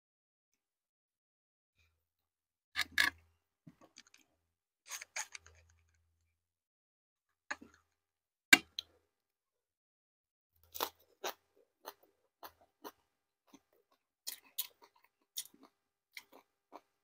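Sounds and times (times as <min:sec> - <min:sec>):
crunching bites and chewing: 0:10.6 - 0:17.0.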